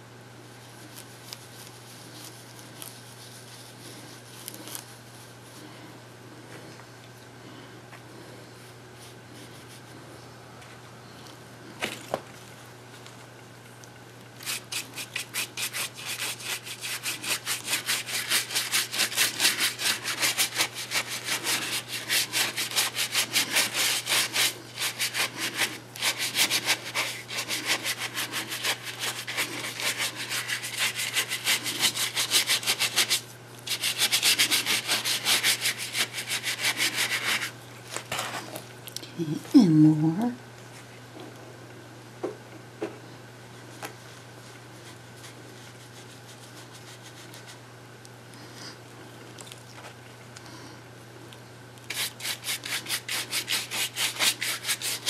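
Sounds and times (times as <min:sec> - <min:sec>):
paintbrush scrubbing: 0:00.8 - 0:05.6, 0:14.4 - 0:37.6, 0:44.8 - 0:47.6, 0:51.9 - 0:55.0.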